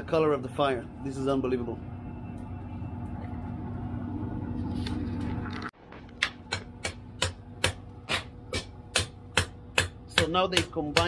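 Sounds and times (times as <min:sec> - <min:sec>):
steady low hum: 0:00.0 - 0:11.0
hammer striking steel on anvil: 0:06.5 - 0:11.0.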